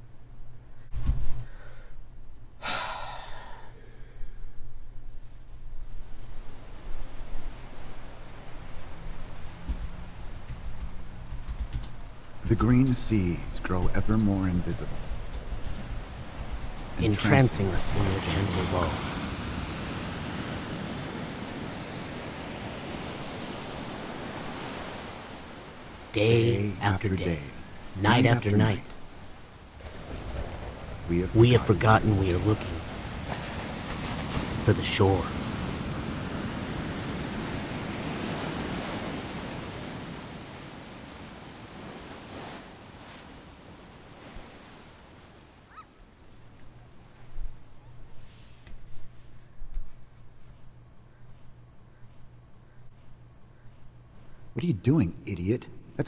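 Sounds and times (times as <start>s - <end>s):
waves washing on rocky shore: 13.6s - 45.6s.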